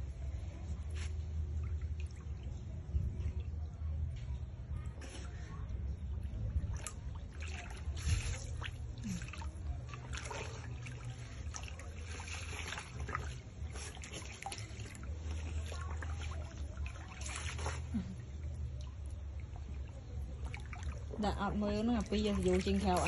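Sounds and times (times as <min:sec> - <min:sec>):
steady low hum: 0:00.0 - 0:23.0
otter splashing in shallow water: 0:06.3 - 0:23.0.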